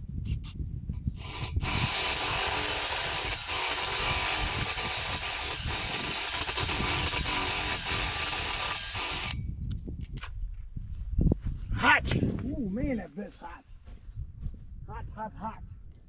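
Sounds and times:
cordless drill drilling into wood: 1.2s - 9.4s.

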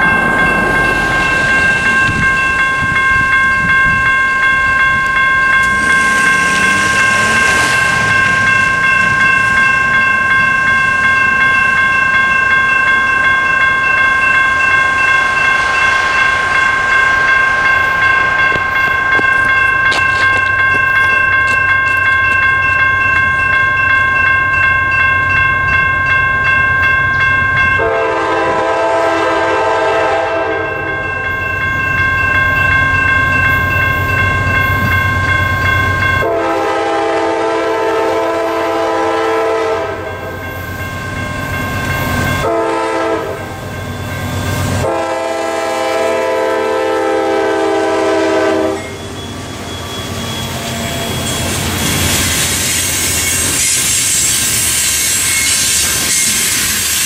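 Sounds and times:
electronic crossing bells: 0.0s - 56.8s
train rumble: 0.0s - 57.0s
locomotive air horn blasts: 27.8s - 30.7s, 36.2s - 40.1s, 42.4s - 43.5s, 44.8s - 49.0s.

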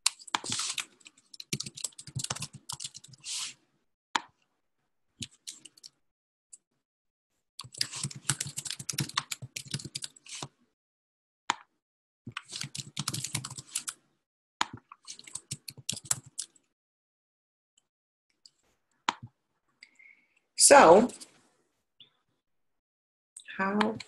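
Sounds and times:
typing on a computer keyboard: 0.1s - 3.3s, 5.2s - 5.9s, 7.6s - 10.2s, 12.4s - 14.0s, 15.0s - 16.6s.

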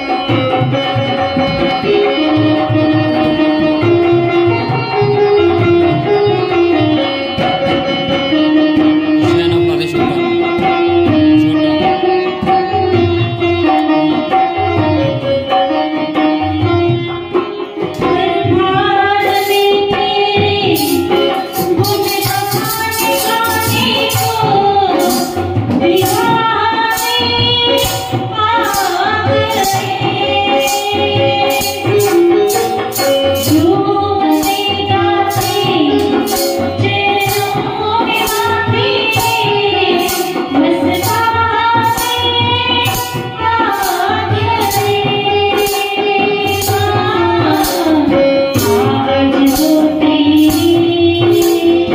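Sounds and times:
woman singing into microphone: 0.0s - 9.3s, 10.0s - 51.9s
keyboard accompaniment: 0.0s - 51.9s
percussion beat: 8.8s - 13.8s, 17.8s - 51.9s.

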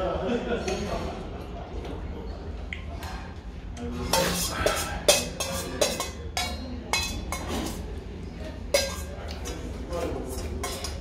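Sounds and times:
metal spoon clinking on bowl: 4.0s - 7.8s, 8.7s - 9.6s, 10.4s - 11.0s.

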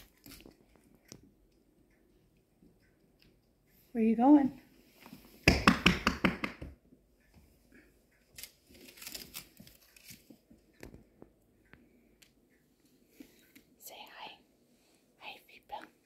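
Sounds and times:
faint ticks and rustles: 0.0s - 5.4s, 6.9s - 16.0s.

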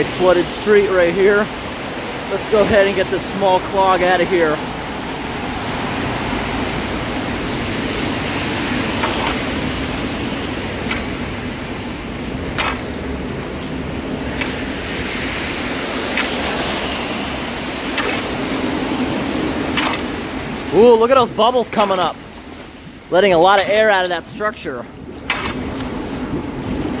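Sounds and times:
road traffic passing: 0.0s - 24.2s
heavy rain: 0.0s - 27.0s
rake scraping through water and leaves: 7.7s - 22.8s, 25.2s - 27.0s.

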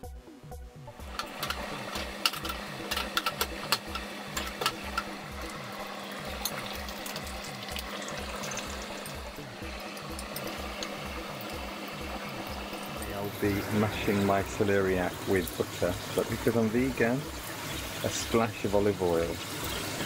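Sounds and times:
background music with a beat: 0.0s - 18.0s
low hum: 0.8s - 16.0s
vegetables sizzling in oil: 0.9s - 20.0s.

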